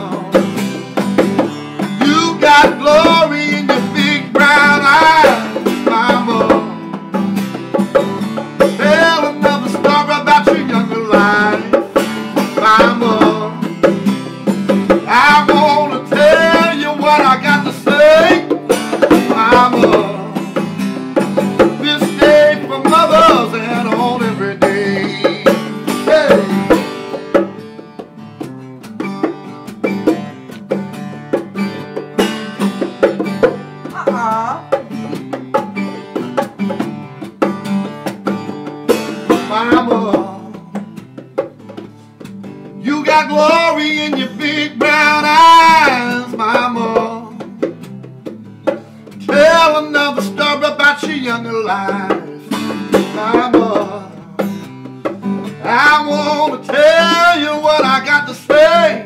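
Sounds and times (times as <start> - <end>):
man singing: 0.0 - 7.0, 8.6 - 14.1, 14.8 - 20.8, 21.4 - 26.9, 39.3 - 40.9, 42.8 - 47.6, 49.2 - 54.6, 55.2 - 59.0
picked acoustic guitar: 0.0 - 59.0.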